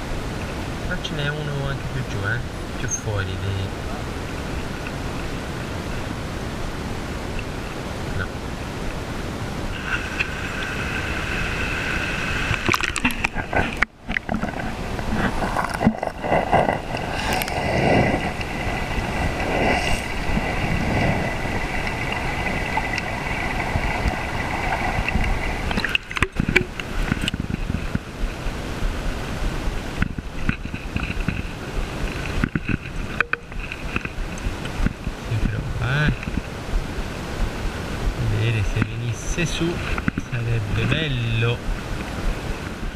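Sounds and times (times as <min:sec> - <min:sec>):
river water rushing and gurgling: 0:00.0 - 0:42.9
faint steady high tone: 0:02.8 - 0:03.1, 0:33.2 - 0:33.6.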